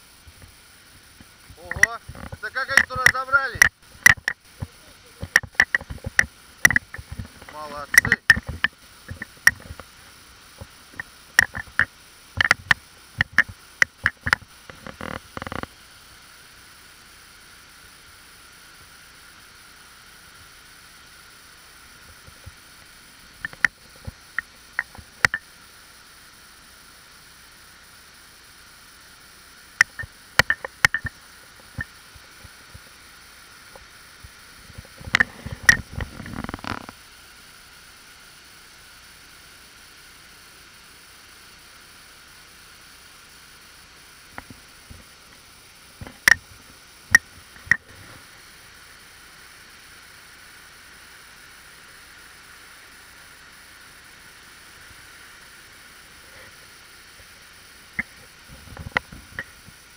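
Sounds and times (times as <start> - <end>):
faint hiss: 0.0 - 59.9
camera housing clicks and knocks: 3.6 - 4.4, 5.2 - 9.8, 11.4 - 15.7, 29.8 - 31.1.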